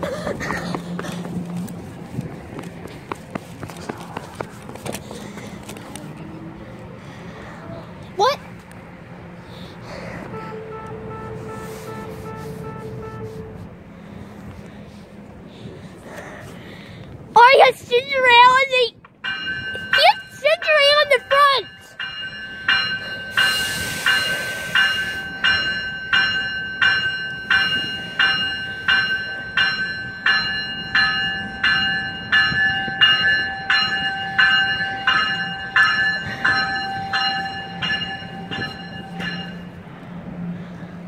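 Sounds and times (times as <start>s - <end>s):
train warning bell ringing: 19.2s - 40.1s.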